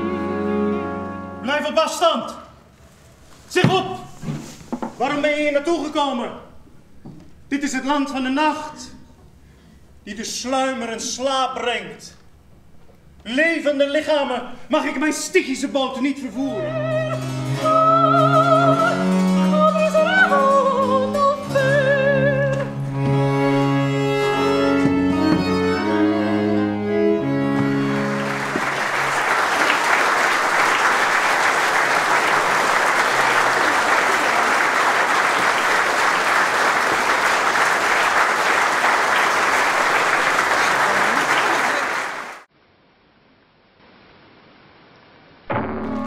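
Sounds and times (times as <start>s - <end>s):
woman singing opera: 16.4s - 22.8s
bowed strings and cello: 16.6s - 29.0s
audience applause: 27.8s - 42.5s.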